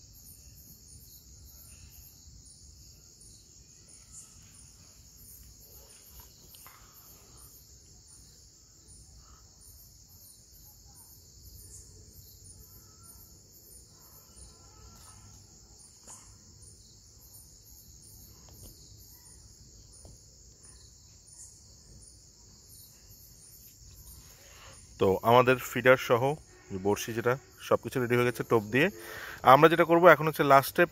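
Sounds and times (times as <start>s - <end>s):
insects chirping: 0.0s - 30.9s.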